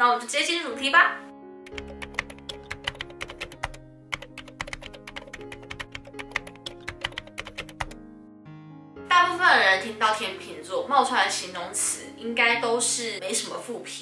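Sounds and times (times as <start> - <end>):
soft background music: 0.0 - 14.0
keyboard typing clicks: 1.7 - 8.0.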